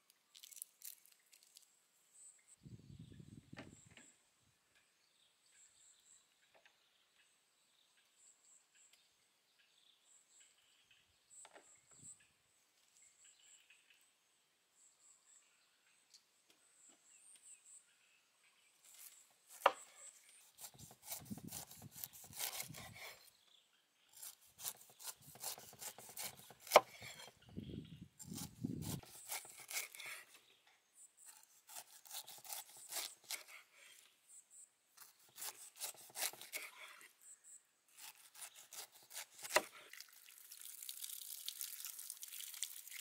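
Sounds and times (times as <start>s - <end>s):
knife cutting pineapple rind: 19.0s - 23.4s, 24.1s - 27.5s, 28.2s - 30.4s, 31.2s - 34.0s, 35.0s - 37.1s, 37.9s - 40.0s.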